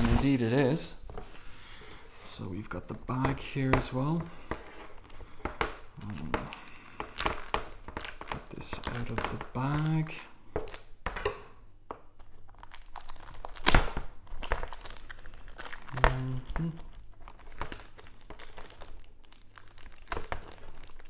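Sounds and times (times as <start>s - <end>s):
plastic bag crinkling and tearing: 4.0s - 10.9s, 12.2s - 21.0s.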